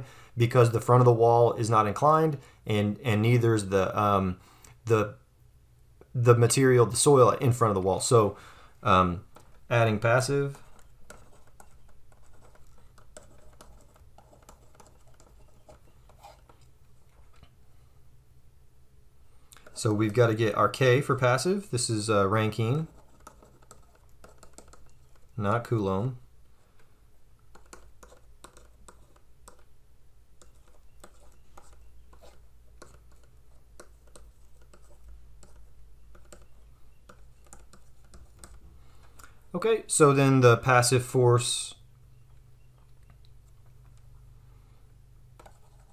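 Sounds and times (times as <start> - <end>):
low steady hum: 0.0 - 45.9
stylus scratching on pen tablet: 9.3 - 17.3, 22.2 - 25.4, 27.5 - 29.7, 30.4 - 38.7, 45.4 - 45.9.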